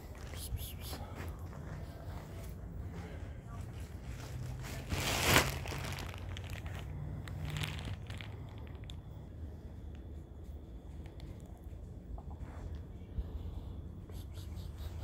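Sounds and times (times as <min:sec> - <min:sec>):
low background hum: 0:00.0 - 0:15.0
crinkling rustle: 0:03.7 - 0:09.0.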